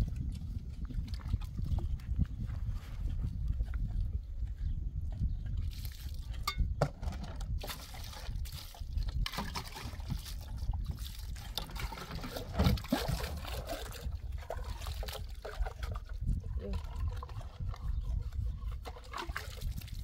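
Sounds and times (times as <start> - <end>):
water trickling and splashing: 0.0 - 2.4, 5.5 - 20.0.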